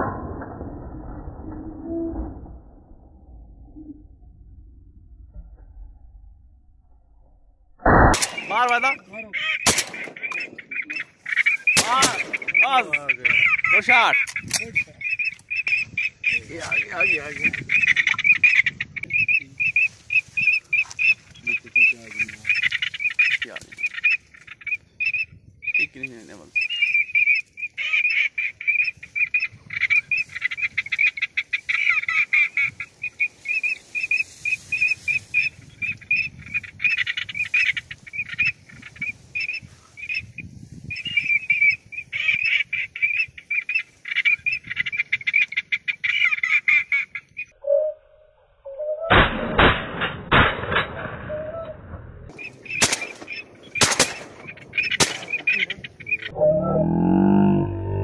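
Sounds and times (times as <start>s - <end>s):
duck calls chattering: 8.2s - 40.3s, 40.9s - 47.5s, 51.3s - 57.6s
low steady tone: 56.3s - 58.0s.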